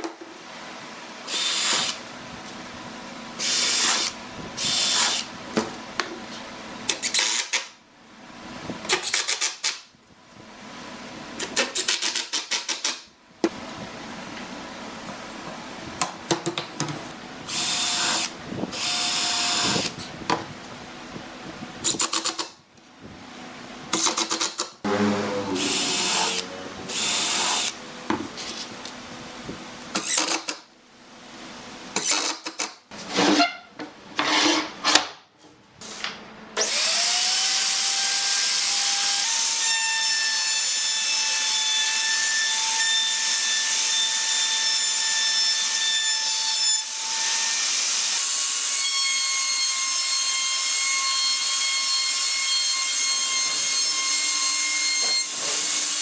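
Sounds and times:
cordless drill driving screws: 1.3 - 2.0, 3.4 - 5.3, 6.9 - 7.6, 17.5 - 20.0, 30.0 - 30.6
router whining: 1.3 - 2.0, 17.5 - 20.2, 23.9 - 28.6.

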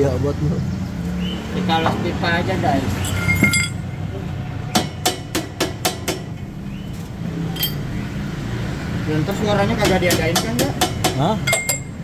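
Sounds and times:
metallic taps on exhaust pipe: 4.7 - 6.5, 9.8 - 12.0.

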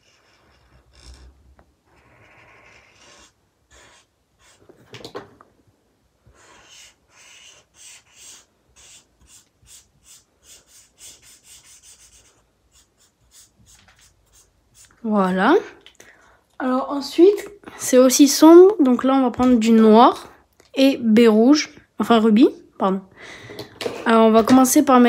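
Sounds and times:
marker rubbing on paper: 0.0 - 1.3, 1.9 - 4.8, 6.3 - 15.1.

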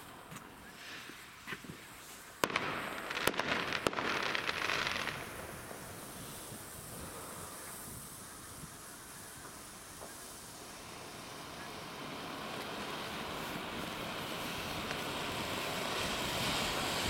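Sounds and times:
firework fountain hissing: 0.0 - 17.0
sharp firework pops: 0.1 - 10.4, 14.6 - 15.1.

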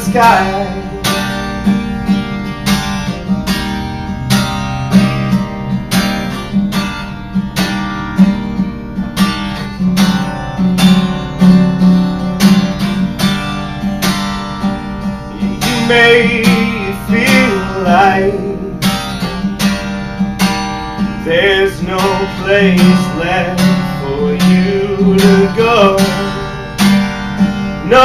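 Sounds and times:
acoustic guitar strumming: 0.0 - 28.0.

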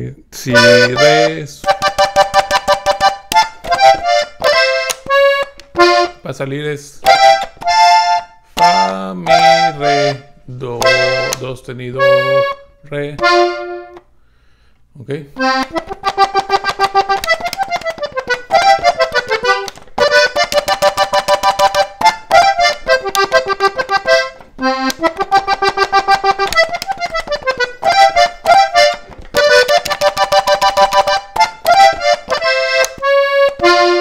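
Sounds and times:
button accordion playing polka: 0.4 - 6.4, 7.0 - 14.1, 15.4 - 34.0.

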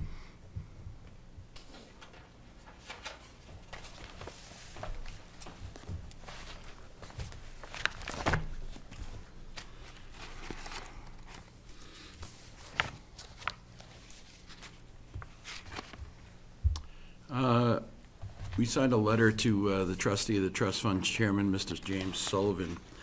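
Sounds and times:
faint steady hum: 0.0 - 23.0
papers rustling: 1.6 - 16.4, 20.8 - 23.0.

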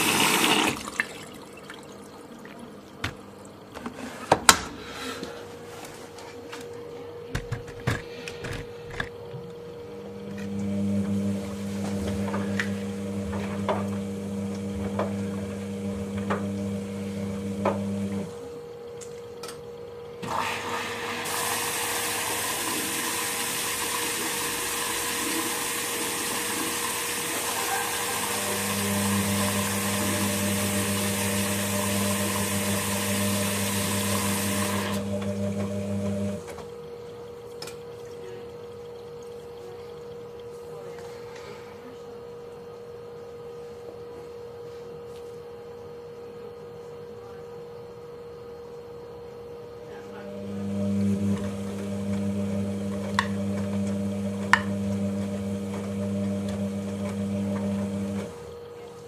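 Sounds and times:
water rushing into machine: 0.0 - 3.7, 10.1 - 18.4, 20.2 - 36.5, 50.1 - 58.7
low electric hum: 6.2 - 20.3, 27.7 - 59.0.

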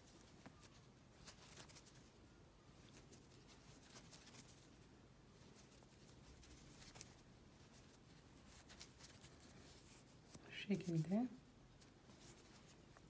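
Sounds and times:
crochet hook clicking and rustling: 0.0 - 2.1, 5.4 - 11.1.

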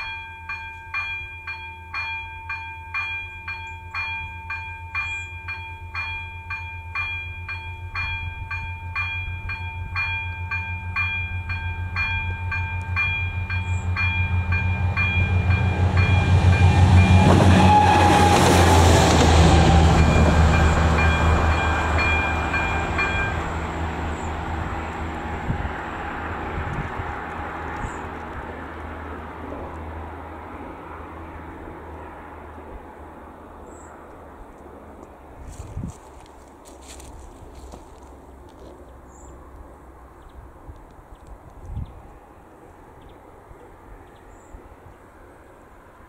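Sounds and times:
level crossing warning bell: 0.0 - 17.8, 19.4 - 24.8
diesel railcar passing: 0.0 - 46.0.

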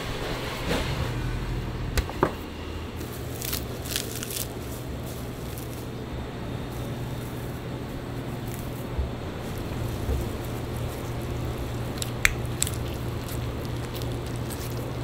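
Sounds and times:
steady low hum: 0.0 - 15.0
hands handling meat: 3.0 - 6.0, 6.6 - 15.0
crinkly rustles: 3.0 - 15.0.

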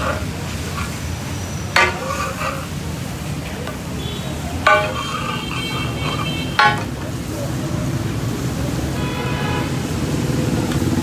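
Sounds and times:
frying sizzle: 0.0 - 11.0
metal spatula clanging on griddle: 1.7 - 3.9, 4.5 - 7.2.

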